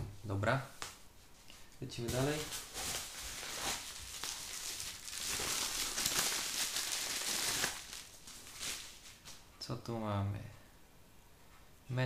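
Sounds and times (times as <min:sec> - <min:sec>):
bubble wrap crinkling: 0:02.0 - 0:09.4.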